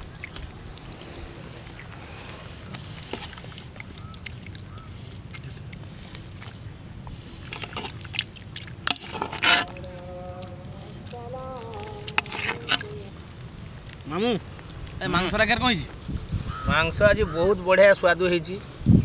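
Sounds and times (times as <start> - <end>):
people eating by hand: 0.0 - 15.4
wind on microphone: 14.6 - 17.7, 18.6 - 19.0.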